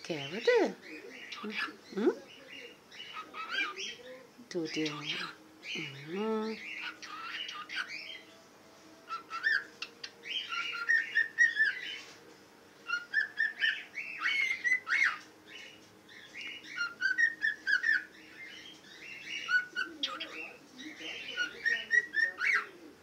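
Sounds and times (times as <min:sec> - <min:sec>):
cockatiel chirping and squawking: 0:01.2 - 0:01.8, 0:02.6 - 0:04.0, 0:04.8 - 0:05.4, 0:06.6 - 0:08.2, 0:09.1 - 0:12.1, 0:12.8 - 0:22.8.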